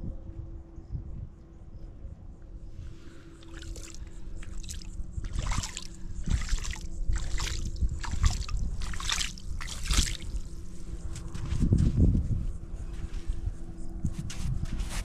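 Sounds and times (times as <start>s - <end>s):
shallow water splashing: 2.8s - 11.0s.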